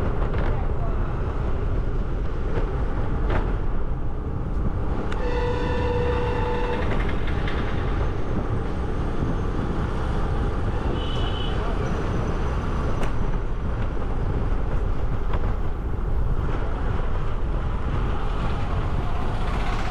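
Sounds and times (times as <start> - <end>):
wind and road rumble: 0.0 - 19.9
vehicle horn: 5.2 - 7.0, 10.9 - 11.6.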